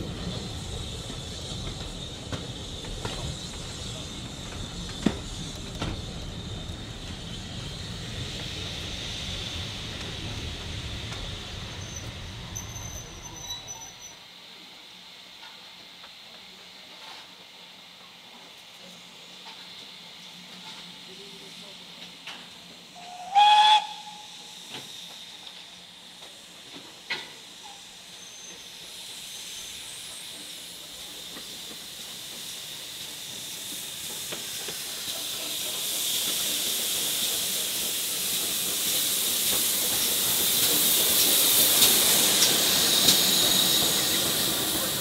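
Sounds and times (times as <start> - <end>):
steam hissing: 0.0 - 45.0
steam train whistle blast: 23.0 - 24.6.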